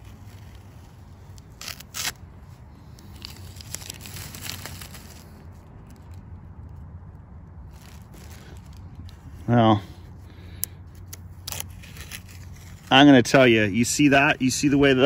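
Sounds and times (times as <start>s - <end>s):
tape ripping: 0.0s - 6.2s, 10.9s - 12.9s
plastic sheet crinkling and rustling: 3.0s - 6.2s.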